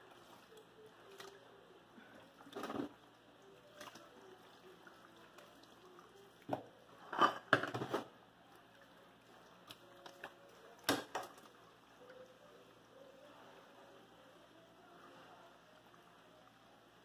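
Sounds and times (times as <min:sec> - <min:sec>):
clatter of household objects: 0:02.4 - 0:03.0, 0:06.5 - 0:08.1.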